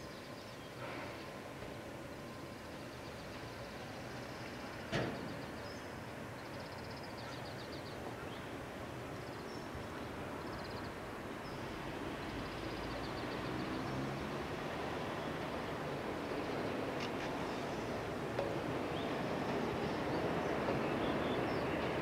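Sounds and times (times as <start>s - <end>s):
distant electric train hum: 8.0s - 22.0s.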